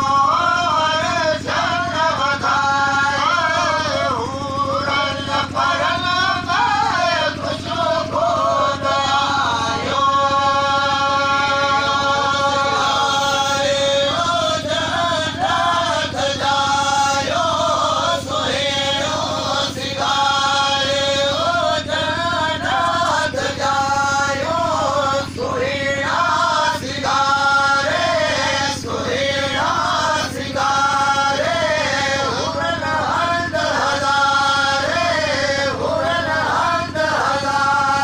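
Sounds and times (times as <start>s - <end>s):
person chanting over loudspeaker: 0.0s - 38.0s
steady low hum: 0.0s - 38.0s.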